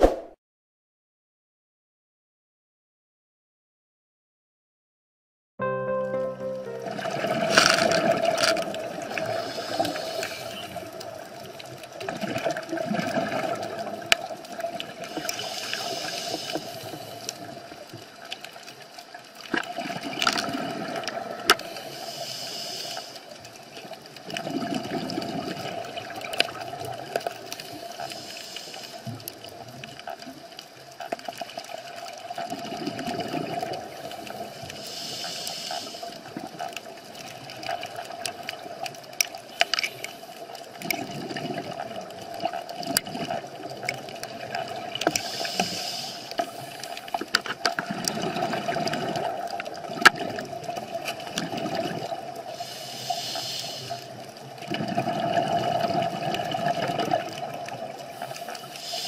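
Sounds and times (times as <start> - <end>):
underwater exhale bubbling: 7.0 - 17.8, 19.6 - 23.2, 24.2 - 29.2, 32.3 - 36.7, 39.5 - 59.0
regulator hiss on inhale: 9.2 - 11.0, 15.0 - 17.7, 21.6 - 23.5, 27.6 - 29.5, 33.9 - 36.4, 39.4 - 40.6, 45.1 - 47.4, 52.5 - 54.3, 58.0 - 59.0.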